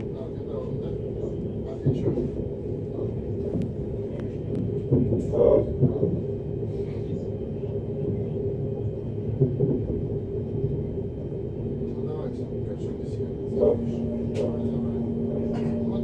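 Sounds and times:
electric train rumbling: 0:00.0 - 0:16.0
faint steady whine: 0:11.3 - 0:16.0.

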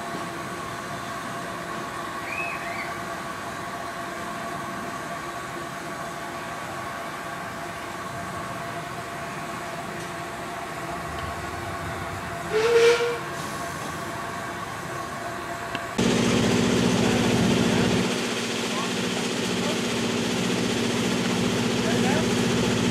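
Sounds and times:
miniature locomotive humming: 0:00.0 - 0:22.9
train whistle toot: 0:12.5 - 0:13.6.

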